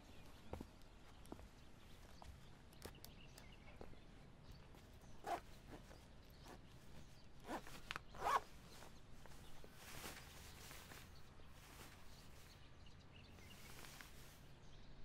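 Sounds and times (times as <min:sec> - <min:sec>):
fabric rustling: 0:05.2 - 0:12.6, 0:13.3 - 0:14.6.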